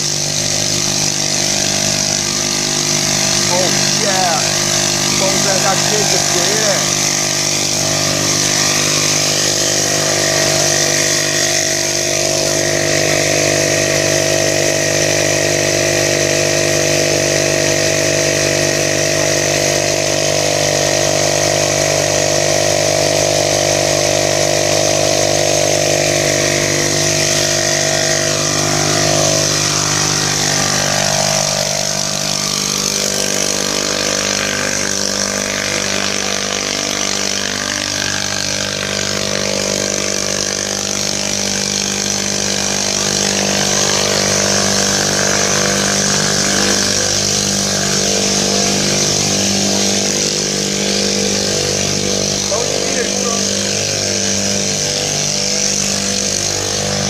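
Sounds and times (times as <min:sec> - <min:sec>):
small engine water pump running: 0:00.0 - 0:57.0.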